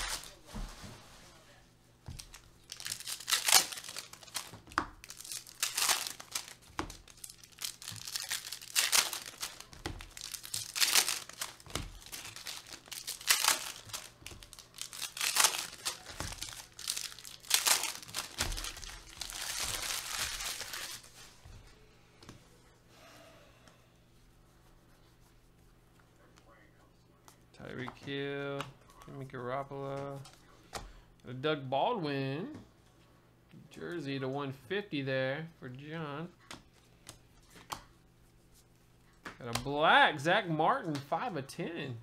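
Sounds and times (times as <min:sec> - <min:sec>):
foil wrappers crinkling and tearing: 0:00.0 - 0:00.4, 0:02.1 - 0:21.3.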